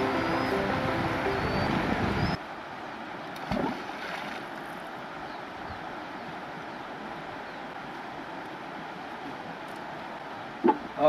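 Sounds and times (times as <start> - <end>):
wind on microphone: 0.0 - 2.4
river rushing over rocks: 0.0 - 11.0.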